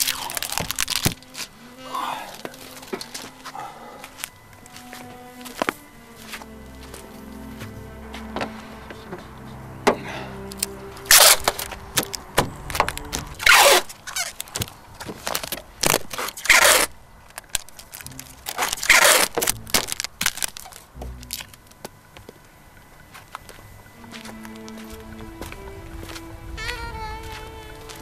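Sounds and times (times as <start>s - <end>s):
packing tape ripping off roll: 0.0s - 1.5s, 12.9s - 21.5s
tape crinkling: 0.0s - 6.4s, 10.4s - 21.9s.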